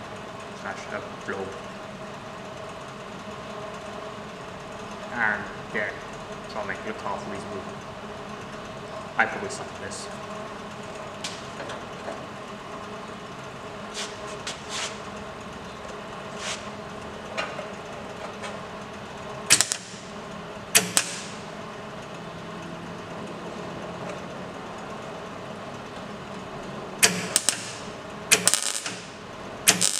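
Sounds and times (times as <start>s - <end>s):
welding torch crackling: 19.5s - 20.1s, 20.8s - 21.4s, 27.0s - 29.9s.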